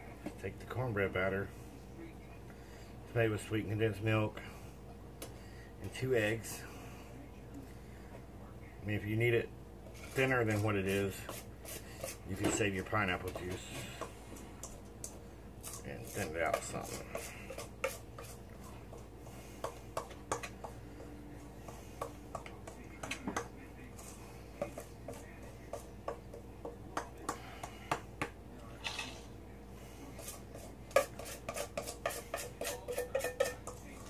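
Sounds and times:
utensil scraping a steel bowl: 10.0 - 14.1, 15.6 - 20.5, 30.1 - 34.0.

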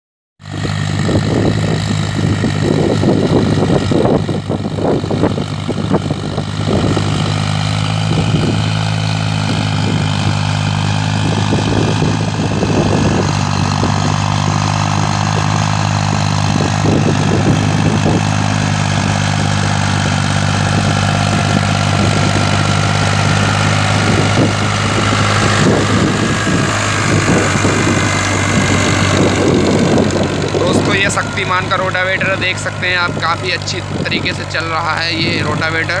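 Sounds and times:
tractor diesel engine under load: 0.4 - 36.0.

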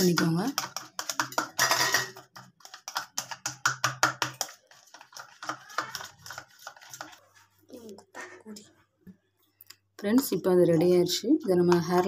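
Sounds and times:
spoon scraping plastic cup: 0.0 - 7.5.

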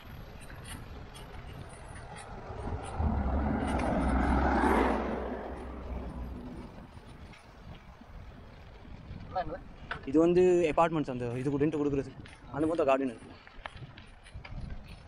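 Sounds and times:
vehicle passing by: 2.0 - 7.0.

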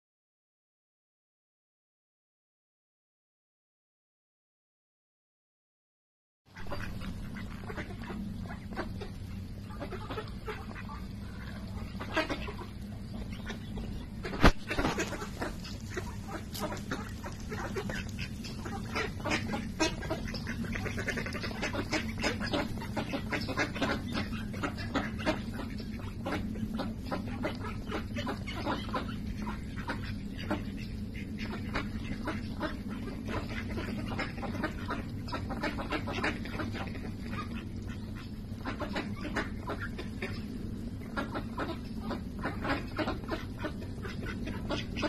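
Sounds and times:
steady low rumble: 6.5 - 45.0
soft duck quacks: 6.6 - 45.0
duck bills clicking: 14.2 - 24.0.

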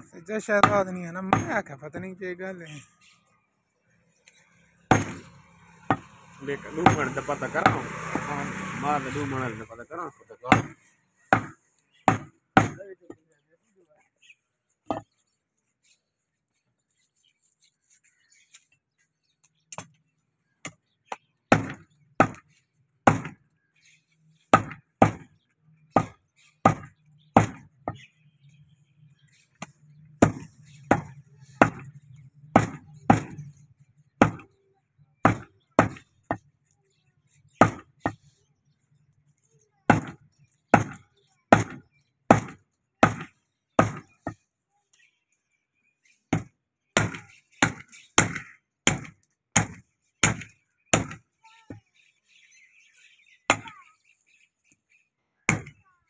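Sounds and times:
meat cleaver chopping on wood block: 32.6 - 33.4.

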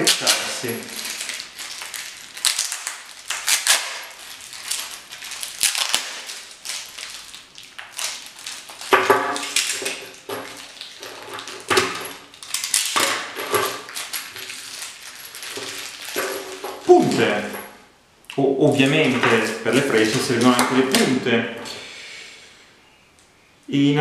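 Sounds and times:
tape tearing: 0.0 - 17.4
plastic wrapping crinkling: 0.0 - 17.7, 18.8 - 21.3.

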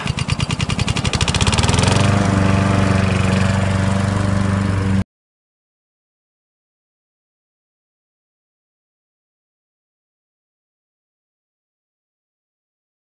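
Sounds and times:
lawn mower engine running: 0.0 - 5.0.

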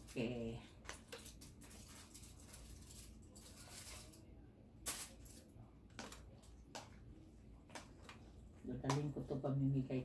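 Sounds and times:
plastic packaging rustle: 0.0 - 6.3.

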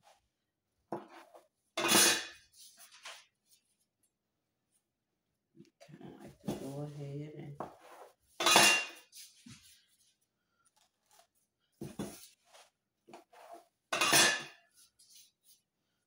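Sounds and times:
knife scraping metal pan: 1.2 - 2.7, 13.4 - 14.6.

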